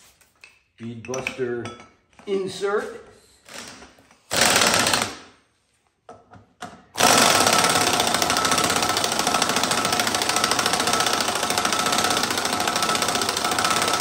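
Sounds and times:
pneumatic impact wrench hammering: 3.4s - 5.4s, 6.7s - 14.0s.

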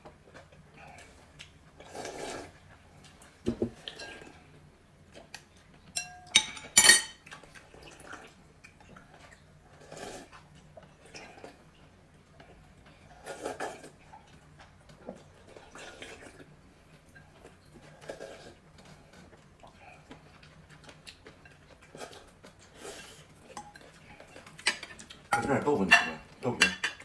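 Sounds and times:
utensils clinking against bowls: 6.0s - 7.2s, 24.6s - 27.0s.

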